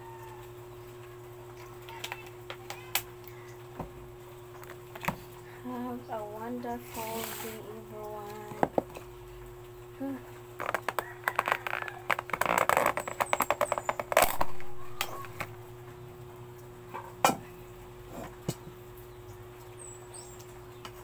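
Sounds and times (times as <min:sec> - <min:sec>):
crackling clicks of eating: 0:00.3 - 0:03.7, 0:04.4 - 0:05.4, 0:07.9 - 0:16.7.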